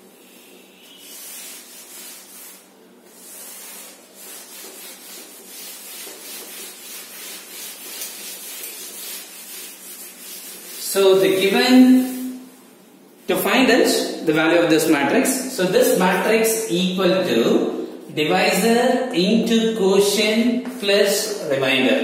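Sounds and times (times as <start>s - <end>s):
duster rubbing on a chalkboard: 0.0s - 12.5s.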